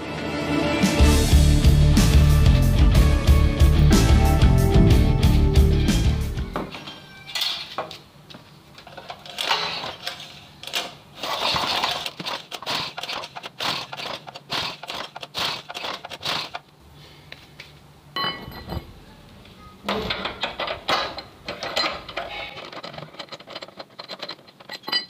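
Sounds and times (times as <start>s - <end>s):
recoil starter pulls: 8.8s - 16.7s, 20.0s - 25.0s
engine cranking with a rattle: 8.9s - 16.6s, 20.0s - 25.0s.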